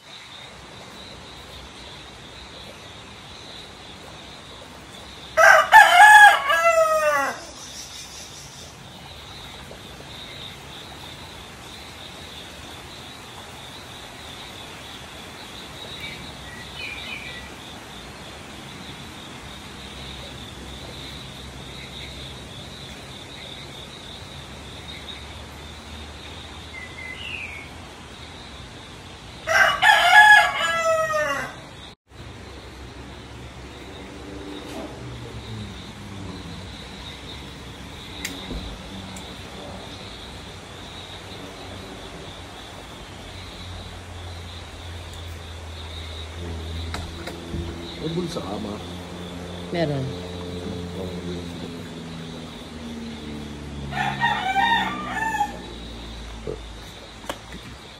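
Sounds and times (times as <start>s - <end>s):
rooster crowing: 5.4s - 7.6s, 29.4s - 31.7s, 53.7s - 56.2s.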